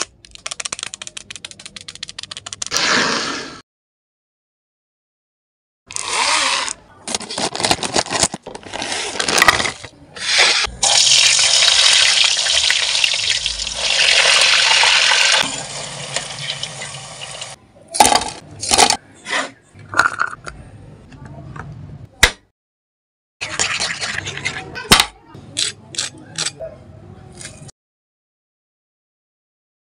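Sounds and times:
potatoes sizzling in oil: 0:10.8 - 0:17.6.

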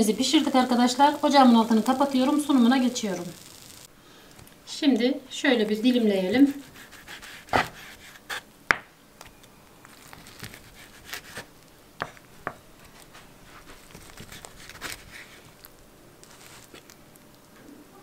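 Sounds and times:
knife tapping and crackling pastry: 0:05.8 - 0:17.5.

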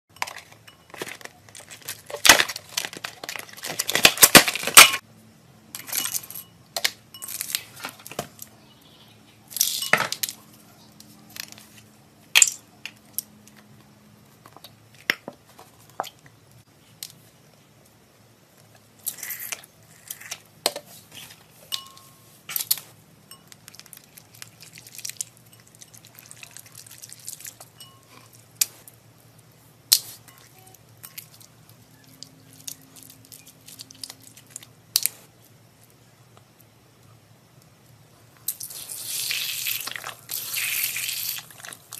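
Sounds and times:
plastic packaging crinkling and tearing: 0:00.3 - 0:05.0.

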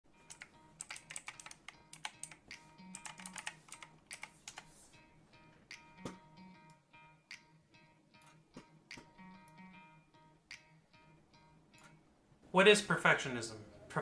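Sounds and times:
quiet background music: 0:00.1 - 0:14.0
typing on keyboard: 0:00.3 - 0:04.7.

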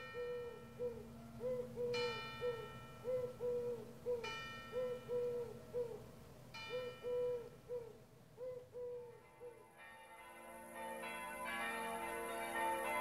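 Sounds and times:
bird hooting softly: 0:00.0 - 0:06.1, 0:06.7 - 0:09.6
church bell tolling: 0:09.2 - 0:13.0.

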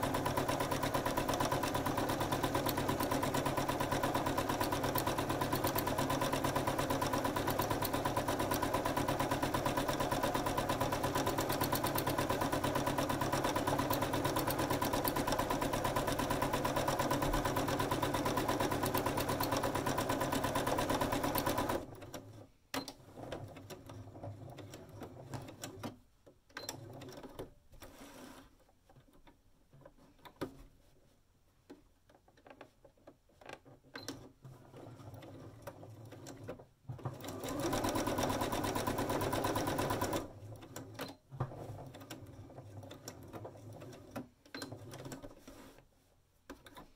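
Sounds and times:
sewing machine running: 0:00.0 - 0:21.9, 0:37.2 - 0:40.3.

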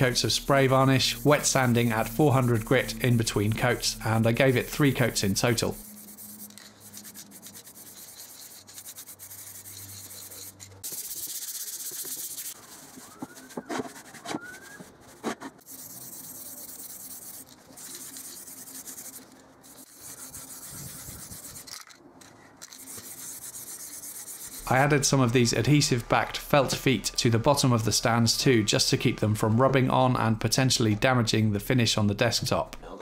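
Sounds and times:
aerosol spray can hissing: 0:00.2 - 0:13.5.

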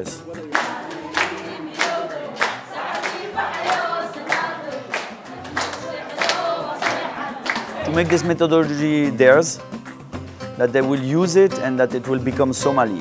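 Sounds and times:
group of people singing: 0:00.0 - 0:08.6
clapping a steady beat: 0:00.0 - 0:10.0.

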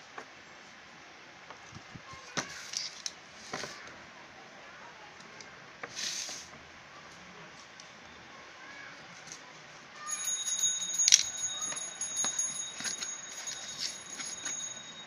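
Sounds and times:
high-pitched ringing tone: 0:10.0 - 0:15.0.

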